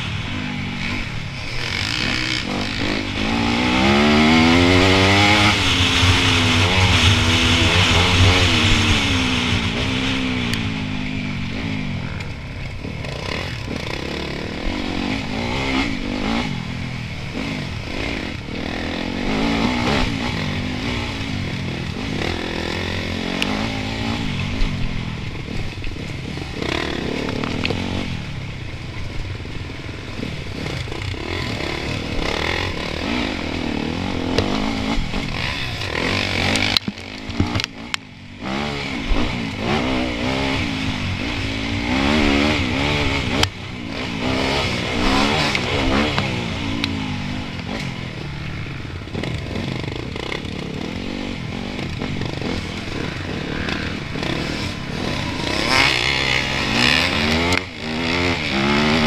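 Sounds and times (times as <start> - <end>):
dirt bike engine revving: 0.0 - 59.0
knocks and rattles over rough ground: 34.1 - 38.1.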